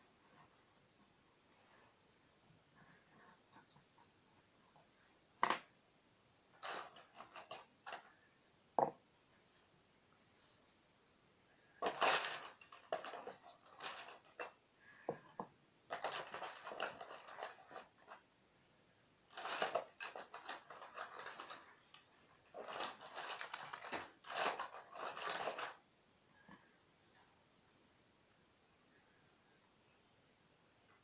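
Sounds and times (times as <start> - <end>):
pencils rasping and clicking: 6.6 - 8.2, 11.8 - 18.2, 19.3 - 25.8.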